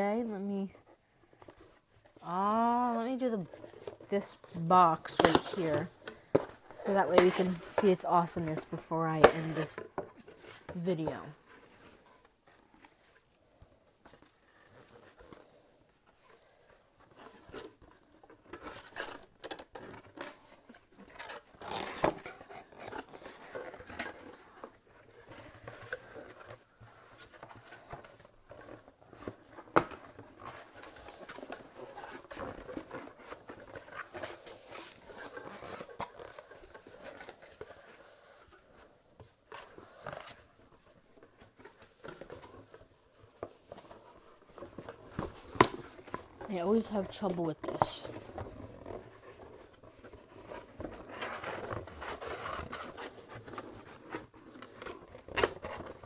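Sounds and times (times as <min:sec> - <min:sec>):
cardboard rustling and scraping: 0:00.0 - 0:56.0.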